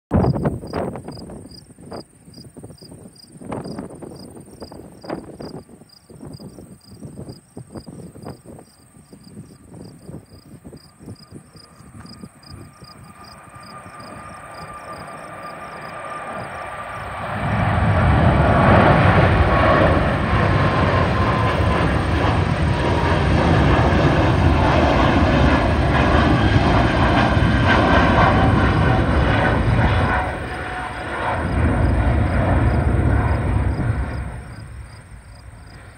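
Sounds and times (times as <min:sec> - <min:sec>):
gusty low rumble: 0:00.1 - 0:35.9
insects chirping: 0:00.2 - 0:17.7, 0:28.3 - 0:35.9
jet engine roar with whine: 0:00.2 - 0:35.9.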